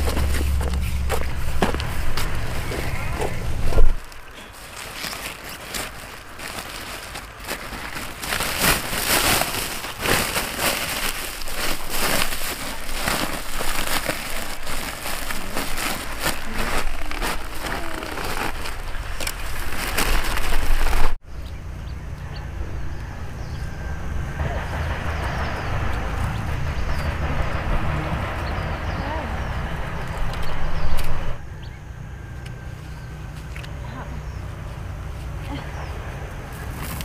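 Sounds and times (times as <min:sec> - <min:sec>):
plastic sack rustling and crinkling: 0:00.0 - 0:21.2
steady low rumble: 0:00.0 - 0:32.2.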